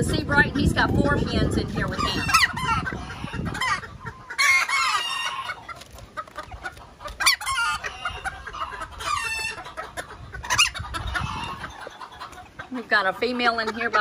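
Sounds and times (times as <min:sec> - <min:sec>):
chickens clucking: 0:00.0 - 0:14.0
rooster crowing: 0:04.4 - 0:05.6.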